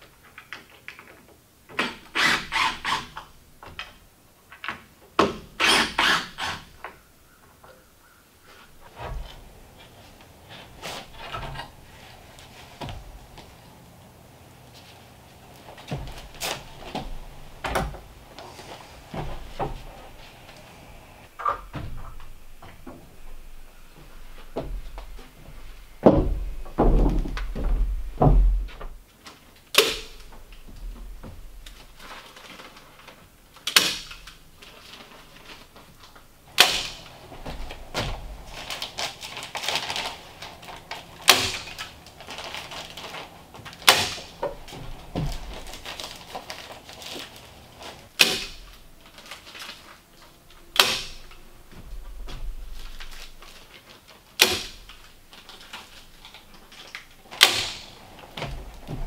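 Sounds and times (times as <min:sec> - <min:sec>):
insulation rustling: 0:06.3 - 0:59.0
heavy low thuds: 0:08.7 - 0:29.0, 0:36.4 - 0:41.3
sharp knocks: 0:26.0 - 0:29.0.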